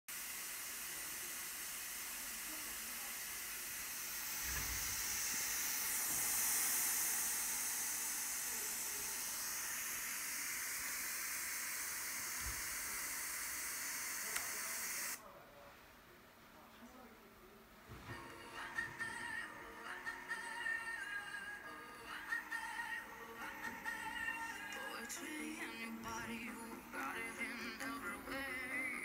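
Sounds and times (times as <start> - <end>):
radio static hiss: 0.1 - 15.2.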